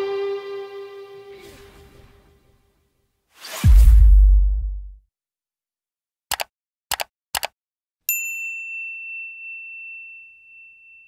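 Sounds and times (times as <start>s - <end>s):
short sharp clicks: 6.3s - 7.6s
notification bell ding: 8.1s - 11.0s.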